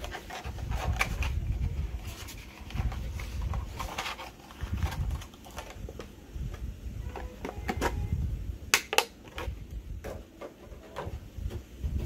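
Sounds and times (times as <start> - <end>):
sharp plastic cracks: 8.7 - 9.5.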